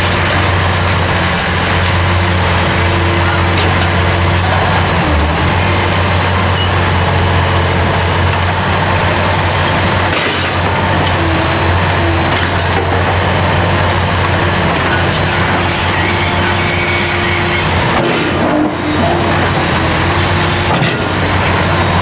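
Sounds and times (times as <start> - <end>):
excavator diesel engine digging: 0.0 - 22.0.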